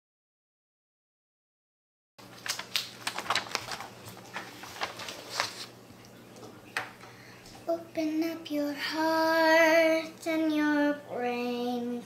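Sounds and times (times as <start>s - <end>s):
paper crinkling: 2.2s - 6.1s.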